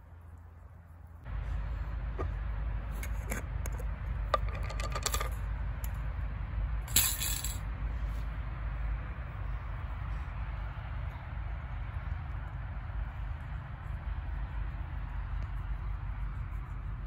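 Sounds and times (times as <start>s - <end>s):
glass jar rattle: 4.4s - 5.4s.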